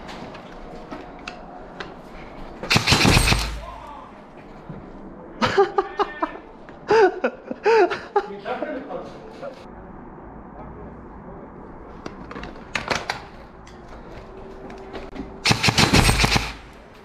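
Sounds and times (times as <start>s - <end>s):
airsoft rifle burst: 2.6s - 3.9s, 15.4s - 16.8s
people shouting: 3.4s - 4.2s.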